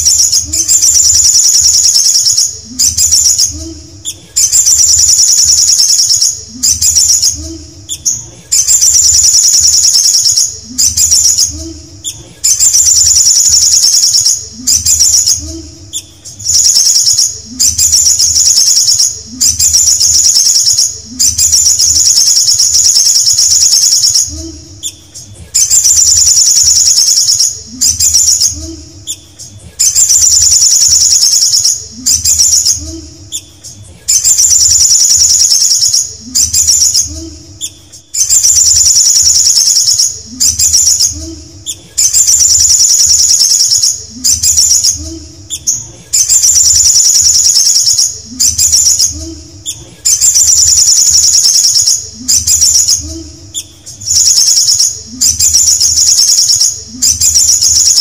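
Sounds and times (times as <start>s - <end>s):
bird singing high trilling phrase: 0.0s - 3.7s, 12.5s - 25.0s, 25.6s - 29.2s, 42.0s - 49.4s, 50.1s - 58.0s.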